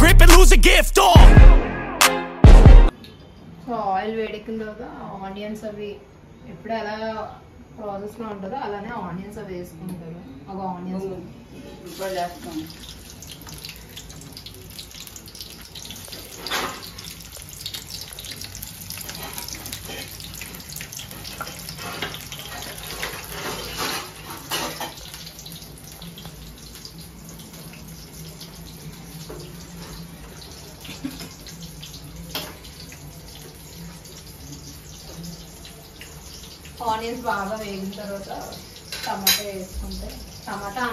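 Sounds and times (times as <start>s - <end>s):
onions sizzling in hot oil: 11.8s - 40.9s.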